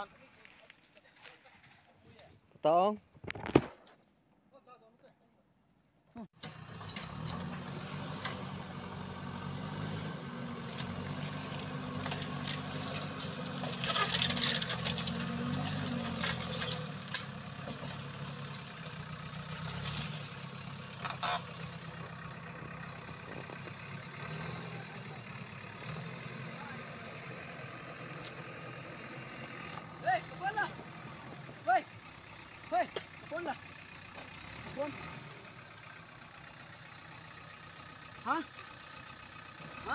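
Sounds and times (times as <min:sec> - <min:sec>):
diesel engine running: 0:06.4 - 0:39.9
debris cracking and clattering: 0:10.6 - 0:18.1.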